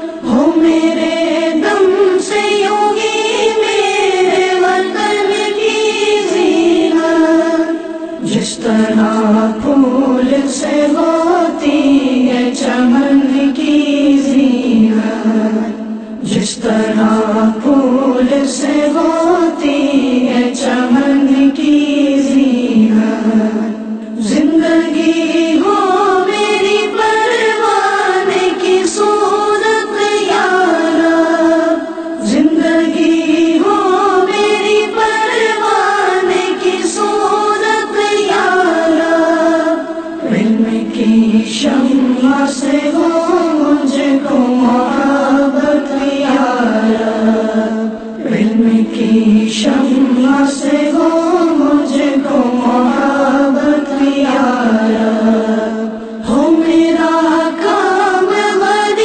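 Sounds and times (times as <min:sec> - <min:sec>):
voices singing a prayer: 0:00.0 - 0:59.0.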